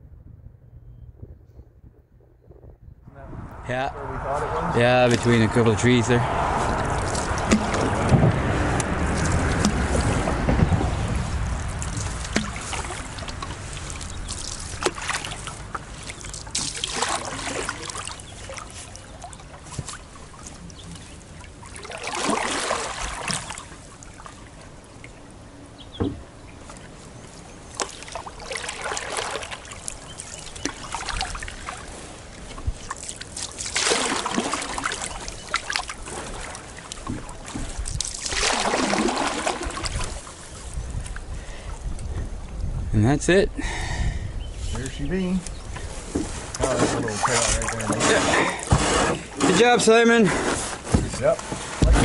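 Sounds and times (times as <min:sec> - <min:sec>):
water trickling and dripping: 0:04.9 - 0:42.7
paddle swishing water: 0:05.1 - 0:25.3, 0:26.2 - 0:41.8, 0:45.5 - 0:52.0.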